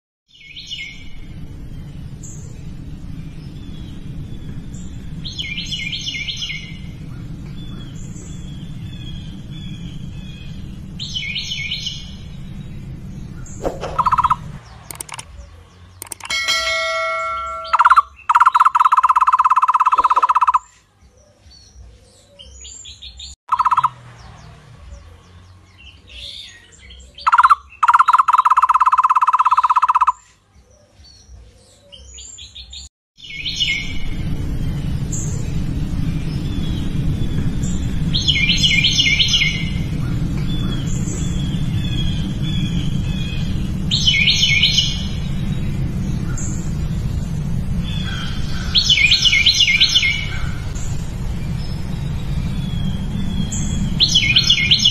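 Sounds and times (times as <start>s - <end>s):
birds chirping: 0.3s - 54.9s
fast-trilled bird calls: 13.4s - 15.4s, 16.0s - 20.7s, 23.5s - 24.0s, 27.2s - 30.2s.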